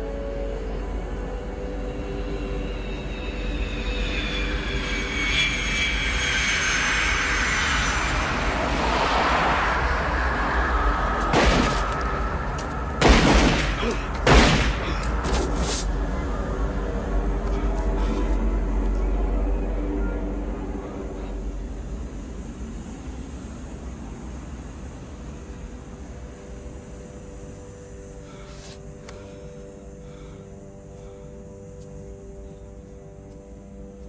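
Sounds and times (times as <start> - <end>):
jet engine whine: 0.0 - 34.0
loud blasts: 11.2 - 15.2.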